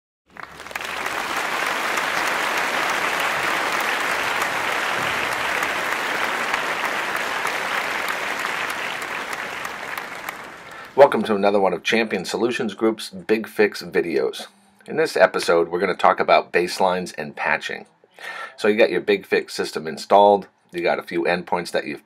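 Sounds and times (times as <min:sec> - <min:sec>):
crowd applauding: 0:00.3 - 0:11.4.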